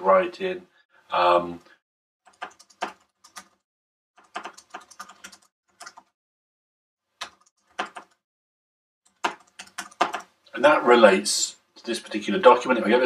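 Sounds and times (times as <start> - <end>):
computer keyboard typing: 2.3 - 3.6, 4.2 - 6.2, 7.2 - 8.2, 9.1 - 10.3.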